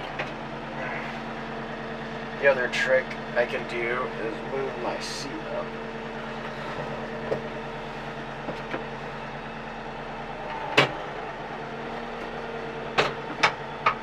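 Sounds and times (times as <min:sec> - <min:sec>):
tractor engine idling: 0:00.0 - 0:14.0
sharp knocks and clunks: 0:10.7 - 0:11.0, 0:13.0 - 0:14.0.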